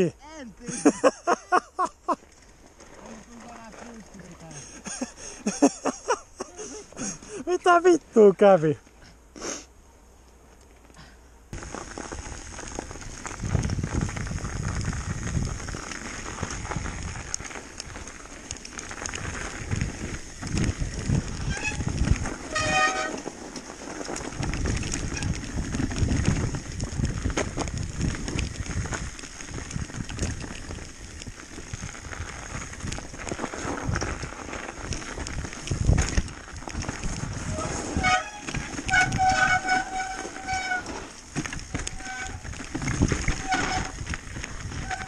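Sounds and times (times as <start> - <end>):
wind buffeting microphone: 11.5 - 40.6, 41.5 - 45.0
bike knocking and rattling: 11.6 - 45.0.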